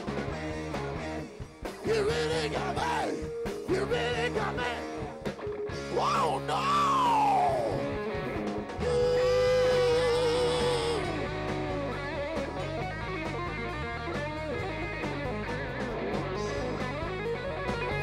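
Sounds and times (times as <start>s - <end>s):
live rock band: 0.0s - 18.0s
electric guitar solo: 5.0s - 18.0s.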